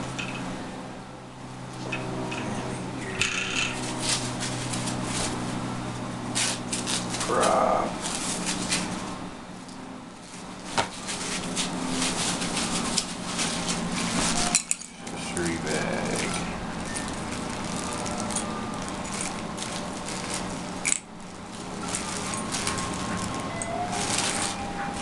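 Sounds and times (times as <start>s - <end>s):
steady low hum: 0.0s - 25.0s
plastic wrap crinkling: 10.2s - 25.0s.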